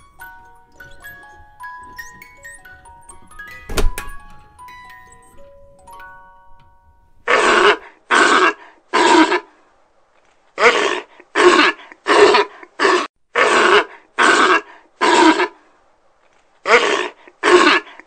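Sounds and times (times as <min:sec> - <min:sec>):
rough animal calls: 0:07.3 - 0:09.5.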